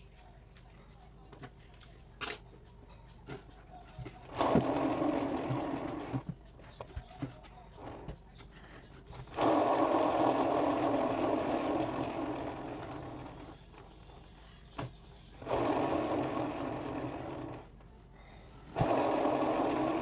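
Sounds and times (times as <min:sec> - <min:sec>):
spinner turntable whirring: 0:04.3 - 0:06.2, 0:09.2 - 0:14.4, 0:15.2 - 0:17.8, 0:18.8 - 0:20.0.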